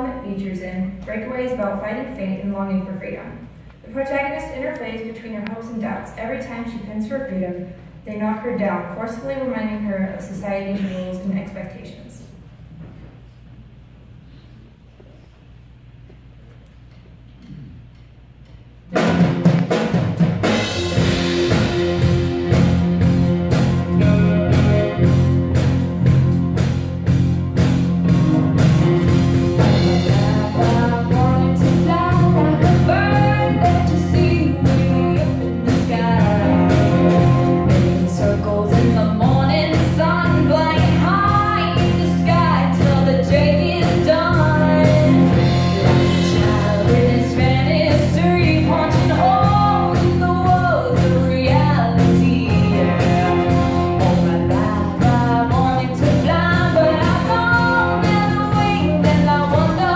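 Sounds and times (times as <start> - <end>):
drum kit beat: 18.9 - 59.9
rock band playing: 18.9 - 59.9
woman singing: 29.6 - 59.9.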